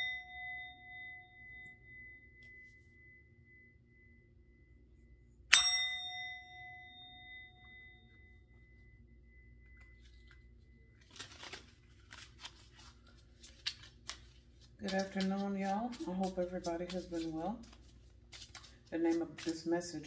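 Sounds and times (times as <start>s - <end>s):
bell chime: 0.0s - 4.4s, 5.5s - 10.0s
faint pulsing high ring: 0.0s - 13.3s.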